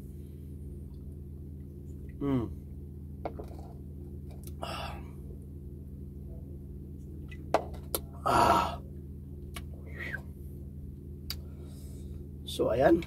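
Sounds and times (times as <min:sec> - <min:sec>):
low hum: 0:00.0 - 0:13.0
person gasping ahh: 0:02.2 - 0:02.6, 0:04.6 - 0:05.1, 0:08.2 - 0:08.8.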